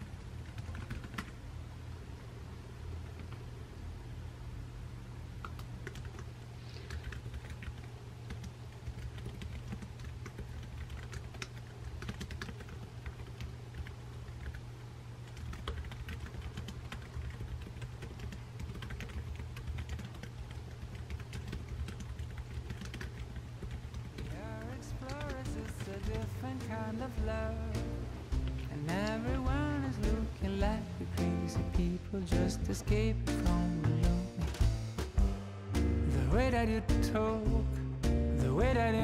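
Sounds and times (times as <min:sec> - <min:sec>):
laptop keyboard typing: 0:00.0 - 0:01.4, 0:05.4 - 0:26.9
steady low hum: 0:00.0 - 0:39.0.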